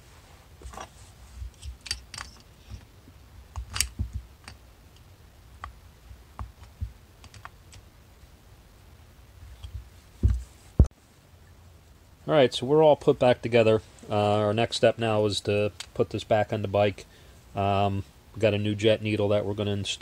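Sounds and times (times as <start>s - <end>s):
small metal parts clicking: 1.5s - 2.8s, 3.6s - 5.0s.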